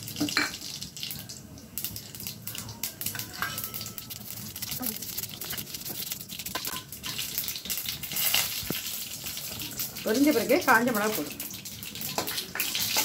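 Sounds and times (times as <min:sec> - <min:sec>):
seeds crackling and popping: 0:00.0 - 0:13.0
seeds sizzling in hot oil: 0:00.0 - 0:13.0.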